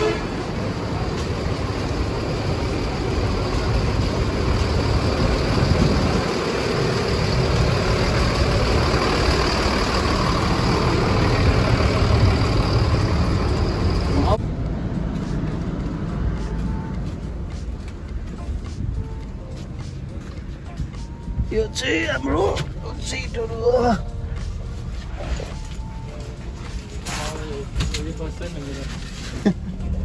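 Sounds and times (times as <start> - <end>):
diesel bus engines idling: 0.0 - 30.0.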